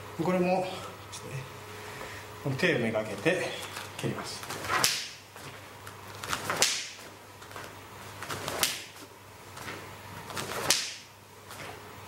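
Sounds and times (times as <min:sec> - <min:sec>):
leg swishing: 0:03.7 - 0:11.8
kick cracking on hands: 0:03.8 - 0:11.8.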